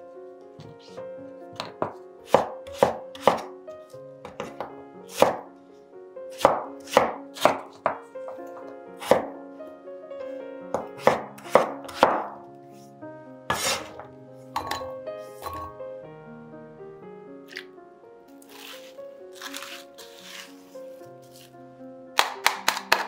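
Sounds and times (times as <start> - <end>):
soft background music: 0.0 - 23.0
knife chopping on wooden board: 1.6 - 3.5, 4.2 - 5.5, 6.3 - 9.3, 10.7 - 12.4, 13.5 - 14.8.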